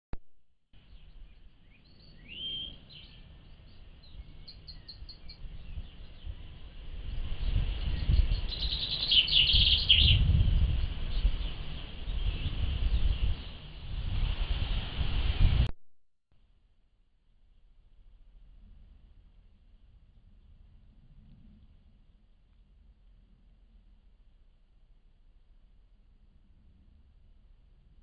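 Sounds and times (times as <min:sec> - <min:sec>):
birds singing and chirping: 0:00.8 - 0:13.6.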